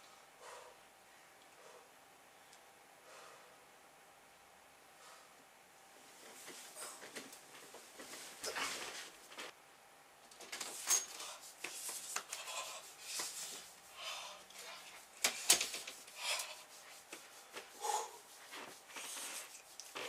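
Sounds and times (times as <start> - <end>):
rustling and rubbing: 6.0 - 9.6, 10.4 - 20.0.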